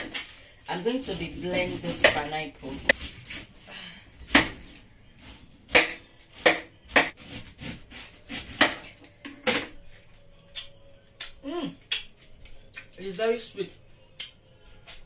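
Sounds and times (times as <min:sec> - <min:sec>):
knife cutting fruit skin: 0:01.0 - 0:03.5, 0:05.7 - 0:09.8.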